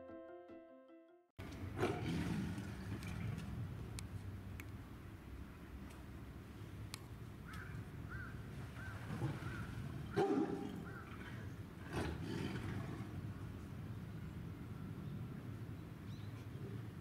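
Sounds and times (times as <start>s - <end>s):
tiger growling: 1.7s - 3.5s, 9.1s - 13.4s.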